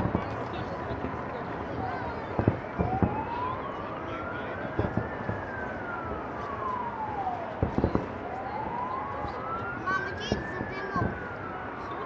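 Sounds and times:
distant fireworks bangs: 0:00.0 - 0:00.7, 0:02.2 - 0:03.4, 0:04.7 - 0:05.6, 0:07.5 - 0:08.3
siren wailing: 0:01.7 - 0:12.0.

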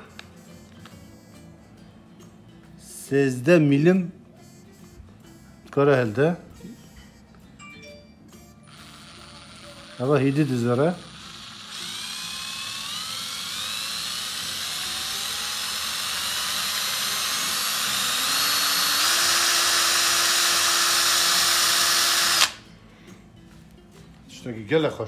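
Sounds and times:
cordless drill motor whine: 0:08.6 - 0:22.6.

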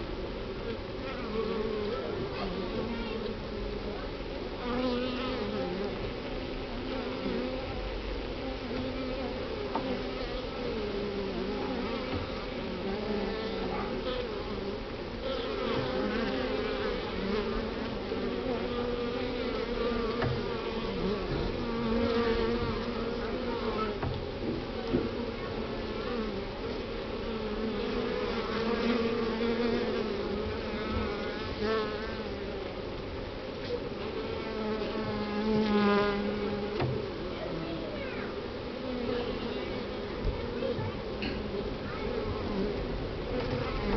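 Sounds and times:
bee colony humming: 0:00.0 - 0:43.9
single bee buzzing: 0:06.9 - 0:24.1, 0:24.8 - 0:32.4, 0:34.0 - 0:37.2, 0:41.4 - 0:43.9.

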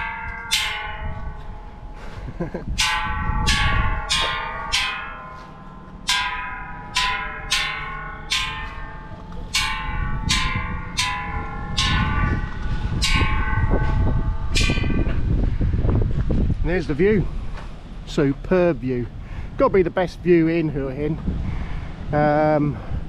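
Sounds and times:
hanging bronze bells struck by hand: 0:00.0 - 0:16.3.

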